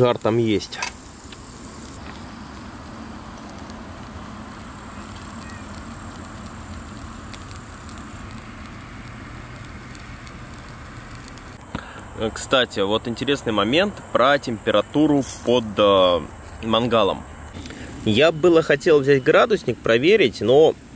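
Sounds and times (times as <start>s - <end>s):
faint crackles: 0.0s - 12.8s, 15.0s - 19.0s
ribs sizzling on a grill: 0.0s - 20.9s.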